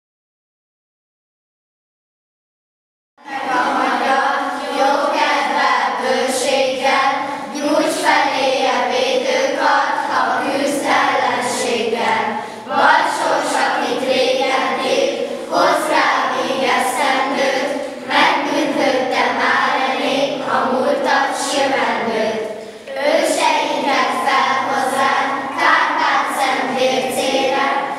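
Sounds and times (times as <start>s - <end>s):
children's choir singing: 3.2s - 27.9s.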